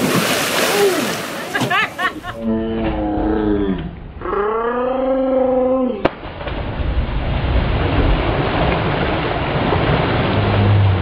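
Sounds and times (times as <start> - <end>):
splashing lake water: 0.0 - 2.4, 6.0 - 11.0
person yelling: 0.7 - 1.1.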